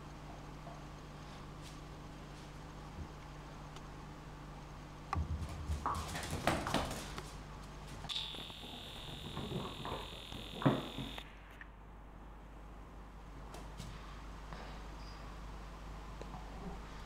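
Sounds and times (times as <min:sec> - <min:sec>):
steady high-pitched beep: 0:08.1 - 0:11.2.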